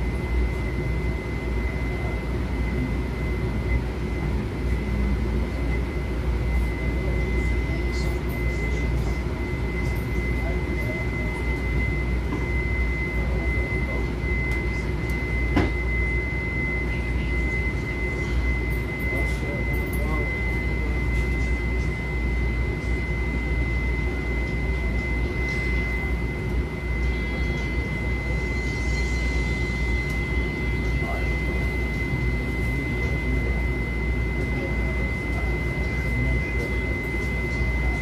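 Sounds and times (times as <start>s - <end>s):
high-pitched whine: 0.0s - 38.0s
train equipment and ventilation hum: 0.0s - 38.0s.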